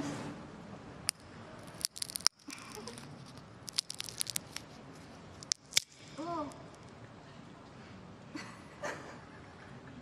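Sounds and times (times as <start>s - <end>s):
crunchy item crushed between fingers: 1.1s - 4.7s, 5.4s - 6.1s.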